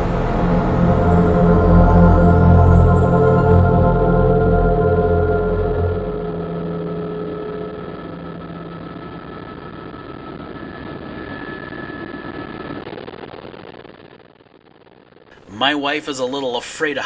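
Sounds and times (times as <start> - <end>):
background music: 0.0 - 8.9
high whine: 0.0 - 17.0
helicopter engine and rotors drone: 5.0 - 12.7.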